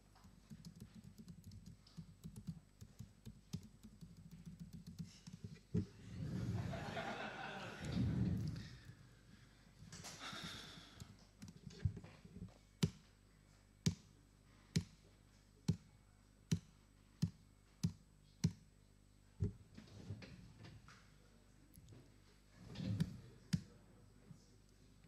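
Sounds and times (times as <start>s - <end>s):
laptop keys clicking: 0.2s - 5.4s.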